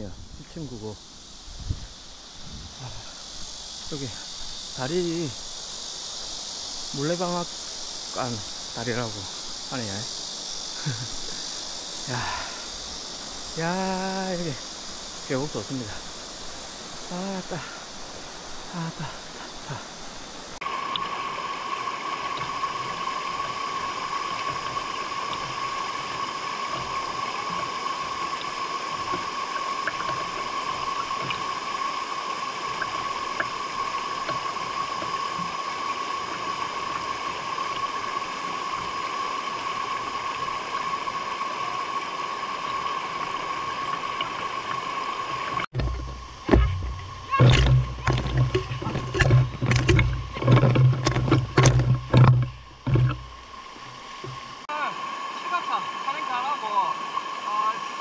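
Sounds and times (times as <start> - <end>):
stream rushing water: 0.0 - 58.0
low rumbles and sharp knocks: 45.7 - 53.6.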